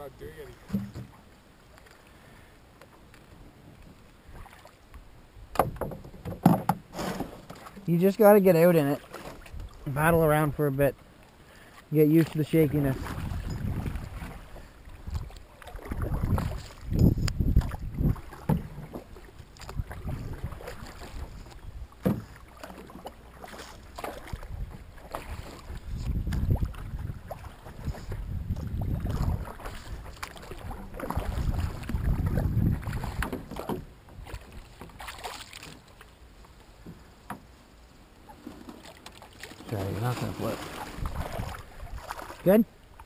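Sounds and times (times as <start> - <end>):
paddle strokes in water: 0.4 - 43.0
knocks against canoe: 0.6 - 1.2, 5.5 - 7.8, 15.9 - 19.9, 20.6 - 26.6, 27.7 - 35.8, 36.8 - 37.5
wind rumble on microphone: 12.8 - 22.0, 24.2 - 34.6, 40.4 - 42.2.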